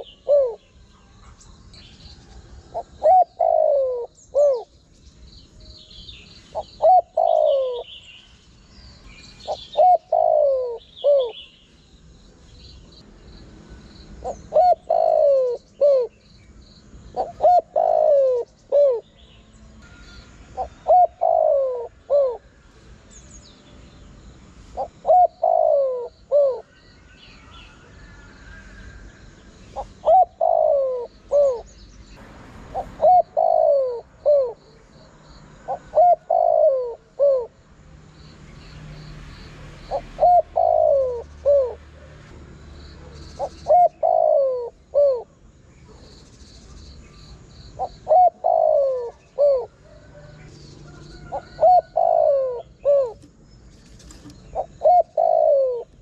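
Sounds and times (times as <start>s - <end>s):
dove cooing: 0.0s - 1.3s, 2.6s - 4.8s, 6.5s - 8.0s, 9.4s - 11.5s, 14.2s - 16.2s, 17.1s - 19.2s, 19.8s - 22.6s, 24.7s - 26.7s, 29.7s - 31.7s, 32.7s - 34.8s, 35.6s - 37.6s, 39.8s - 42.2s, 43.0s - 46.7s, 47.7s - 56.0s
small birds chirping: 0.0s - 32.2s, 32.8s - 56.0s.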